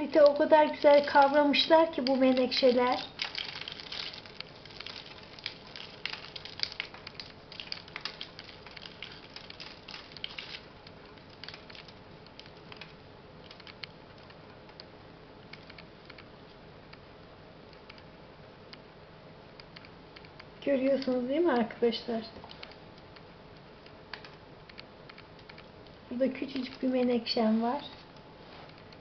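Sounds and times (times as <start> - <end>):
perlite granules crunching: 0.0 - 13.8.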